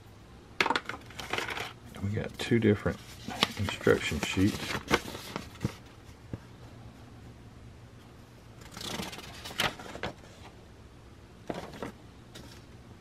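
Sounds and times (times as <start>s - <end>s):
paper rustling and crinkling: 1.0s - 6.2s, 8.6s - 10.6s, 11.5s - 12.7s.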